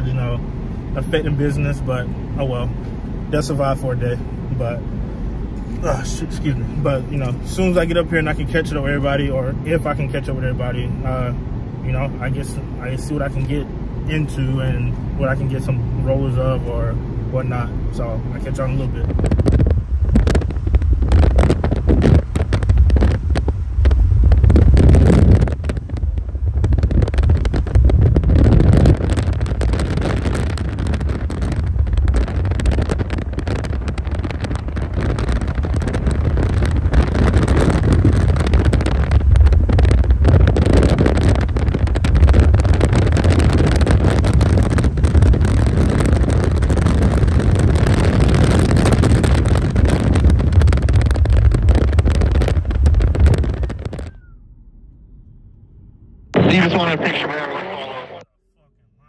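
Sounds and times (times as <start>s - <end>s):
car engine and road rumble: 0.0s - 59.0s
wind on microphone: 19.0s - 54.3s.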